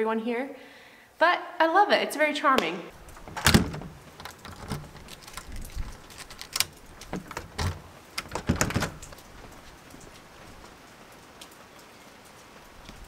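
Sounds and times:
door rattling: 3.0 - 9.6
door latch clicks and knocks: 3.2 - 9.3.

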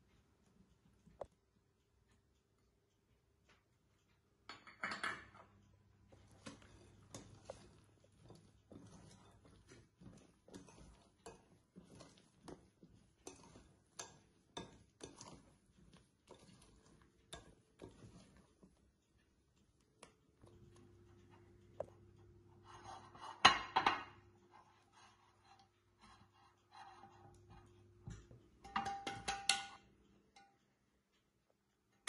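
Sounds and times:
fork scraping glass bowl: 6.1 - 18.8, 22.5 - 23.8, 24.5 - 27.8
low steady hum: 20.1 - 32.0.

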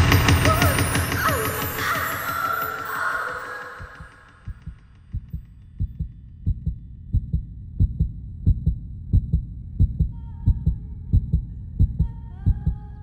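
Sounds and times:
low double thumps: 3.8 - 13.0.

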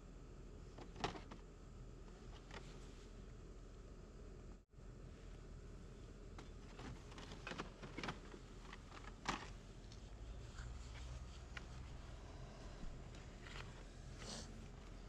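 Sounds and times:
plastic packs clicking and rustling: 6.4 - 10.0.

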